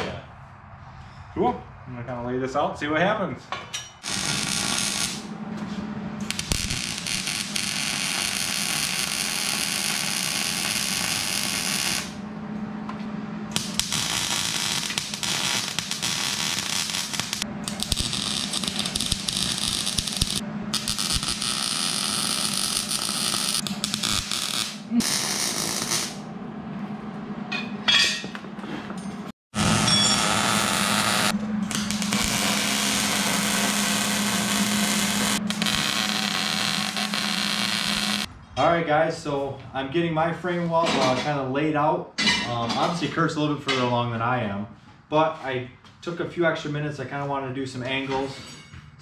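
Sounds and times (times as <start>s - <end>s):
welder arc crackling and hissing: 4.0s - 5.3s, 6.2s - 12.2s, 13.5s - 26.2s, 29.6s - 38.3s
steady low hum: 4.0s - 40.4s.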